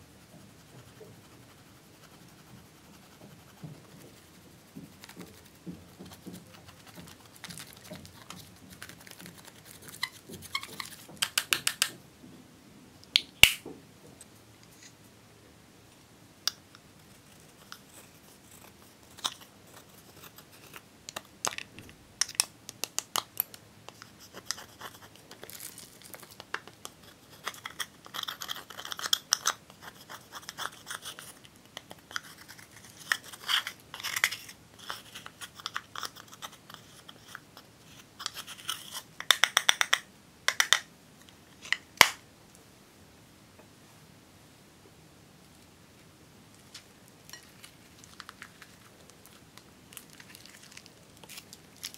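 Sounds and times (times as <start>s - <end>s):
small clicks and taps: 21.1s - 24.1s
spatula scraping powder in compact: 26.8s - 39.1s.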